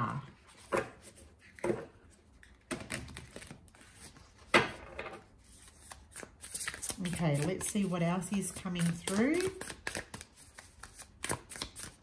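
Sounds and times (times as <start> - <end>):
cards clicking and tapping: 8.4 - 12.0.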